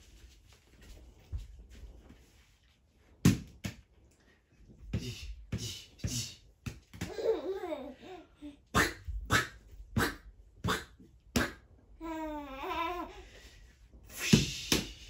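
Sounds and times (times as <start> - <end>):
baby babbling and laughing: 7.1 - 8.6, 12.0 - 13.2.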